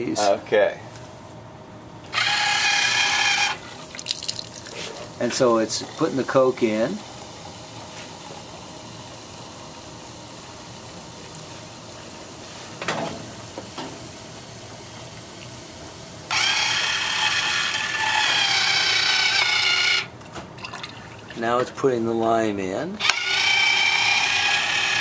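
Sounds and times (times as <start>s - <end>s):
motor mechanical whine: 2.0s - 3.7s, 16.3s - 20.1s, 23.0s - 25.0s
soda pouring into a glass: 3.8s - 12.4s.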